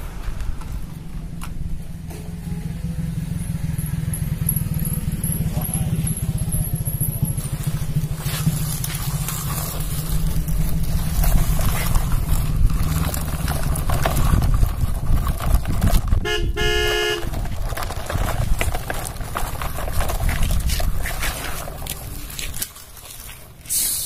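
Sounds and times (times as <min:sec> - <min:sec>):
toy wheels crunching over gravel: 0:04.1 - 0:24.0
toy horn toot: 0:16.2 - 0:17.4.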